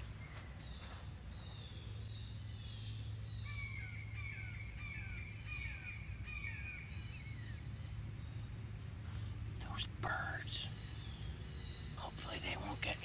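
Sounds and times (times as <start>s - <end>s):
birds calling: 0.0s - 13.0s.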